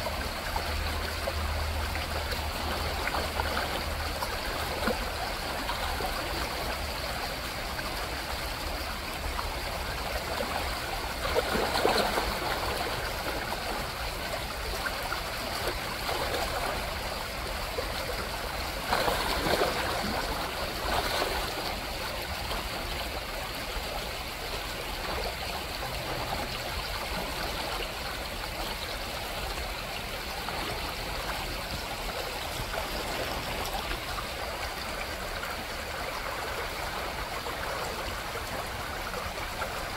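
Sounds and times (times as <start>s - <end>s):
creek running over gravel: 0.0s - 39.9s
fish splashing: 10.7s - 21.9s.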